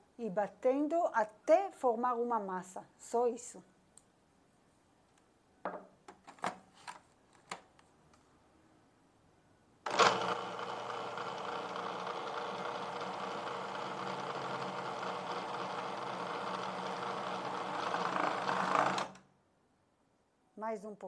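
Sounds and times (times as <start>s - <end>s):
food processor running: 9.9s - 19.2s.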